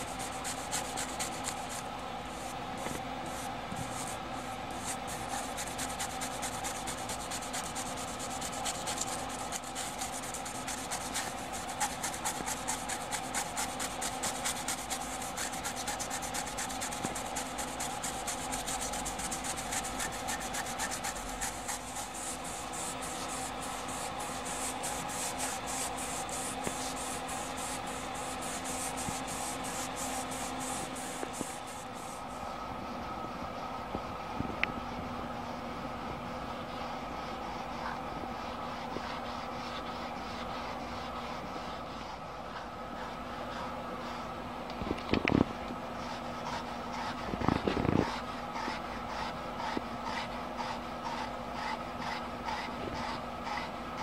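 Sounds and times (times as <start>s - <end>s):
brush scrubbing: 0.0s - 1.8s, 2.4s - 32.2s, 46.0s - 53.8s
electrical hum: 0.0s - 54.0s.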